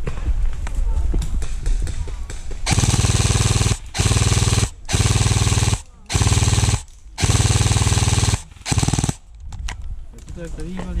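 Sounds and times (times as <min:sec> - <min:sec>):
airsoft gun firing bursts: 0:02.3 - 0:09.3.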